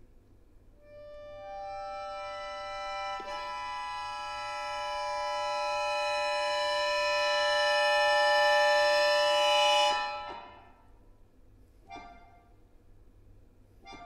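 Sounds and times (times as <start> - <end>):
accordion chord: 0.8 - 11.0.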